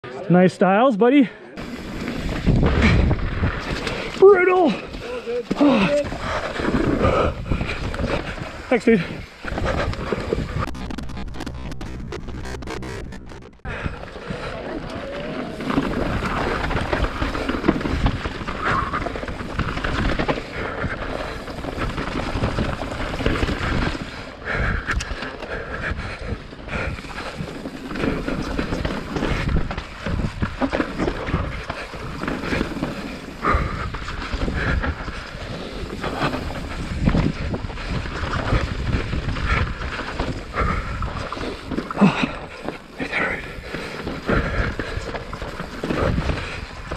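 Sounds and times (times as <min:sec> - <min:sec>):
bike tyres on dirt: 0:01.5 - 0:46.9
bike knocking and rattling: 0:01.6 - 0:46.9
wind buffeting microphone: 0:01.9 - 0:04.2, 0:05.8 - 0:12.0, 0:33.4 - 0:42.5.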